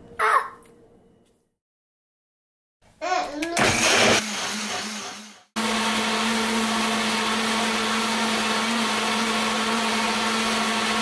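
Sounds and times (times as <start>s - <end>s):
blender motor running: 3.6s - 11.0s.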